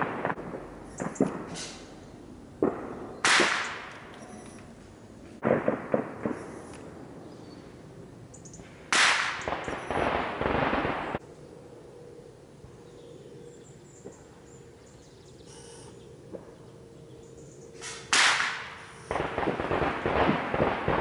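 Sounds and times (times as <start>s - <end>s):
rushing burst with sharp cracks: 0.0s - 1.9s, 2.6s - 4.1s, 5.4s - 6.9s, 8.8s - 11.2s, 18.1s - 21.0s.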